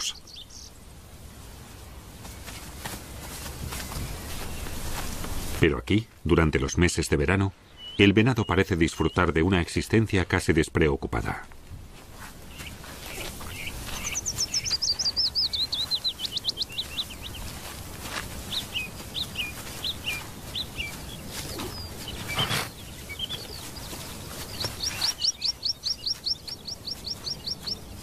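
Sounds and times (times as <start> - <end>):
small songbird singing: 0.0 - 0.8, 3.8 - 5.0, 7.5 - 9.8, 12.5 - 28.0.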